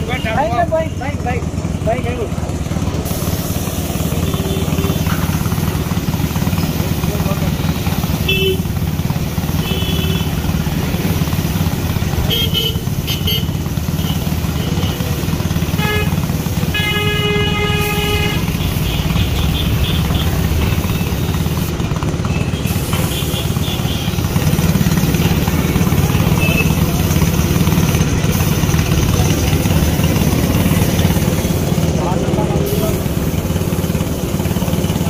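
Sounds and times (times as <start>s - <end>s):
traffic rumble: 0.0s - 35.0s
vehicle horns honking: 4.0s - 5.3s, 7.6s - 8.8s, 9.4s - 10.6s, 12.2s - 21.5s, 22.2s - 26.9s.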